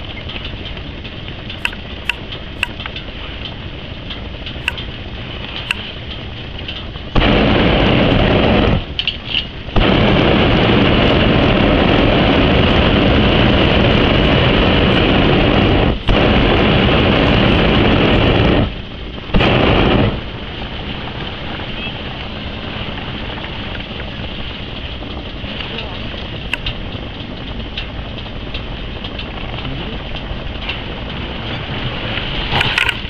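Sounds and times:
propane burner roaring: 0.0s - 33.0s
quiet hiss with clicks: 0.1s - 6.9s.

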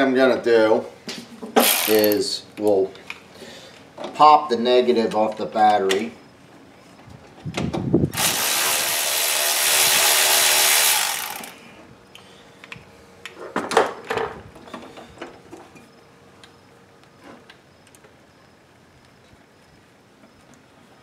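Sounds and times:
cordless power ratchet running: 1.6s - 2.2s, 8.1s - 11.6s.

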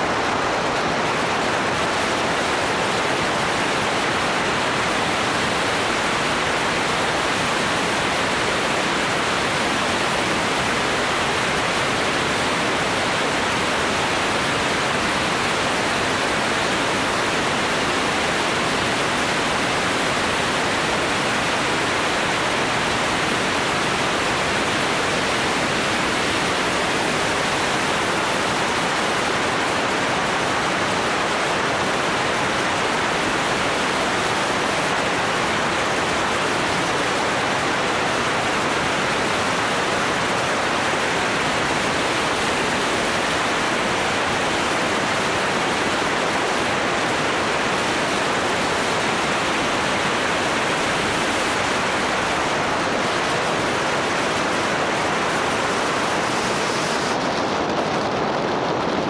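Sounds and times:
wind noise on microphone: 0.0s - 59.0s.

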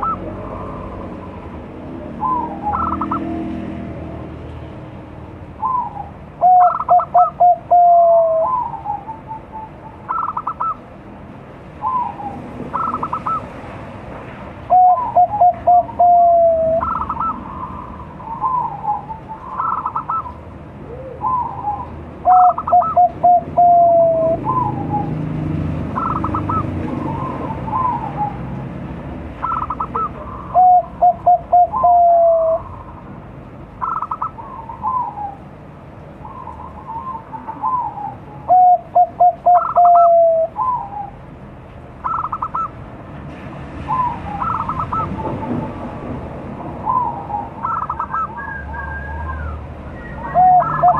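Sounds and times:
dove cooing: 0.0s - 1.4s, 2.0s - 3.6s, 5.6s - 10.8s, 11.8s - 13.5s, 14.7s - 25.2s, 25.9s - 28.5s, 29.4s - 33.0s, 33.8s - 35.5s, 36.2s - 41.2s, 42.0s - 42.7s, 43.9s - 45.4s, 46.8s - 50.9s
fainter higher-pitched dove cooing: 5.6s - 10.7s, 20.8s - 25.1s, 36.8s - 41.2s.

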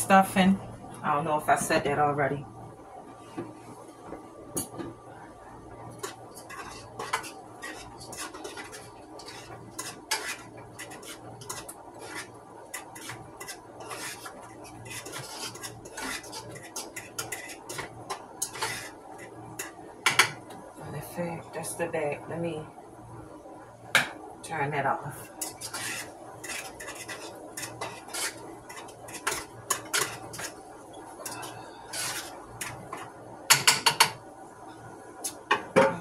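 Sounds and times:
steady low hum: 0.0s - 36.0s
spoon scraping in a pot: 5.9s - 20.4s, 25.2s - 34.2s
spoon knocking against pot: 33.5s - 34.2s.

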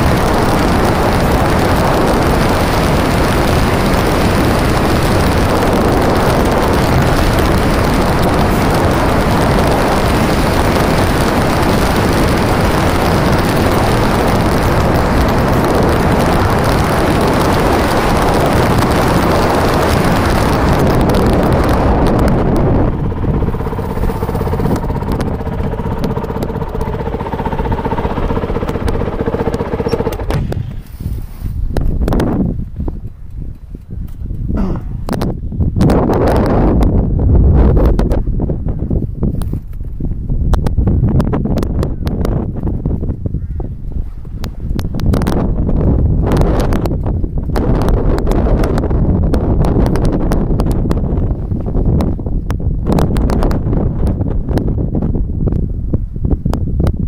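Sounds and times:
motorcycle engine running: 0.0s - 34.8s
wind rush on microphone: 0.0s - 57.0s.

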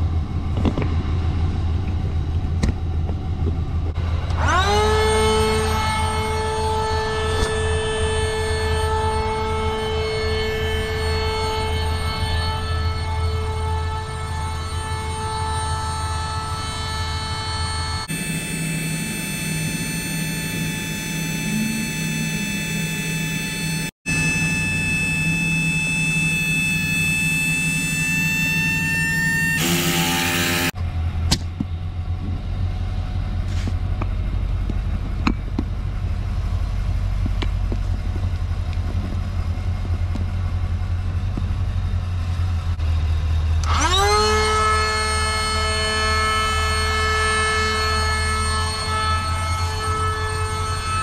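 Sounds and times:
truck engine idling: 0.0s - 29.6s, 30.8s - 43.7s
steady whine: 0.0s - 51.0s
electric inflator pump whine: 4.0s - 30.8s, 43.5s - 51.0s.

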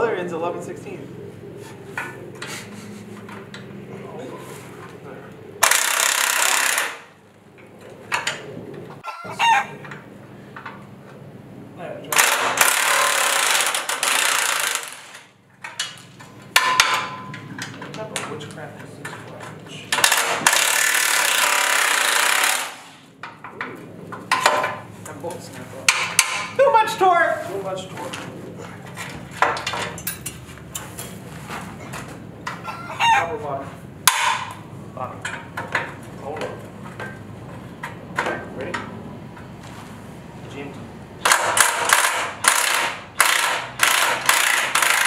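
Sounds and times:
impact driver hammering: 5.6s - 7.1s, 16.6s - 17.4s, 20.0s - 22.9s, 25.9s - 26.6s, 34.1s - 34.6s, 41.2s - 45.0s
impact driver whine: 5.6s - 7.2s, 12.2s - 15.3s, 19.9s - 23.1s, 41.2s - 45.0s
sharp metal clang: 16.6s - 17.5s
wrenches clinking on steel frame: 29.5s - 31.0s.

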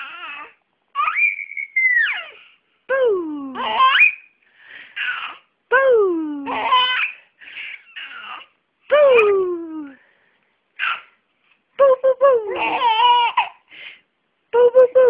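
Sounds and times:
baby squealing and cooing: 0.0s - 2.6s, 3.5s - 4.4s, 5.0s - 5.5s, 6.4s - 9.5s, 10.8s - 11.2s, 12.4s - 13.6s.

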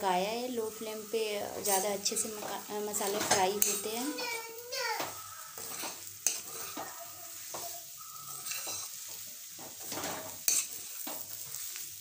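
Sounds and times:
vegetables sizzling in pan: 0.0s - 12.0s
metal spoon scraping pan: 1.4s - 4.4s, 5.0s - 11.8s
spoon knocking on pan: 4.9s - 11.3s.

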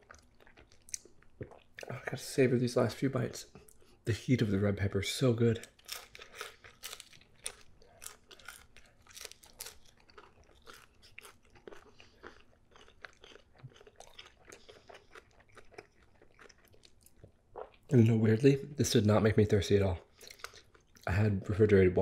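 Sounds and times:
person chewing crisp crust: 0.0s - 1.8s, 5.6s - 17.8s, 20.0s - 21.1s.

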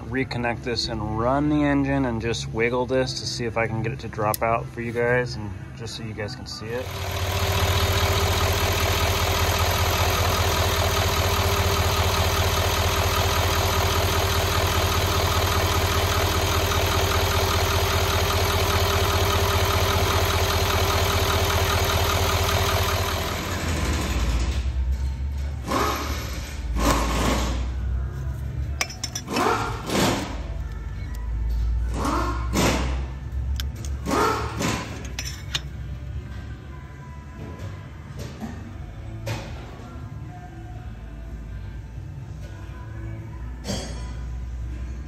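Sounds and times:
diesel engine idling: 6.6s - 25.0s.

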